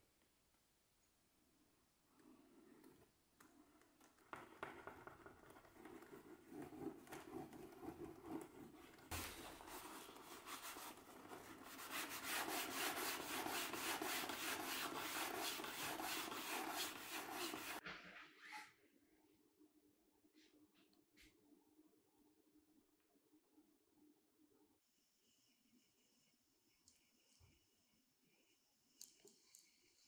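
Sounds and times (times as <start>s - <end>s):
cloth rubbing on leather: 5.6s - 17.8s.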